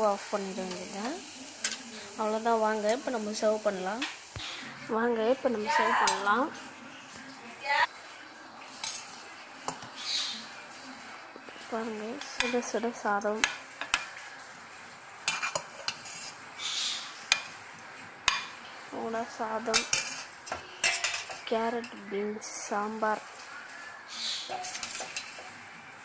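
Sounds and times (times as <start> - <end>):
spoon clinking on a plate: 19.8 - 21.4.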